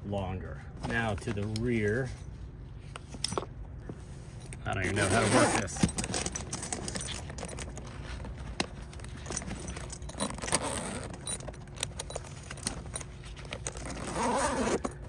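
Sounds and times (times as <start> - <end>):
tool bag clicks and scrapes: 4.4 - 15.0
bag rustling: 4.8 - 15.0.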